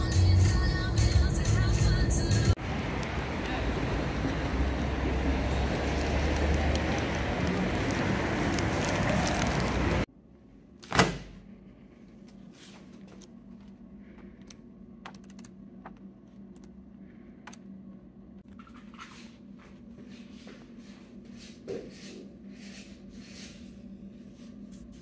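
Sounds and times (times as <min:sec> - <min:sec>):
city street traffic noise: 0:00.0 - 0:10.1
magazine pages turning: 0:05.8 - 0:10.1.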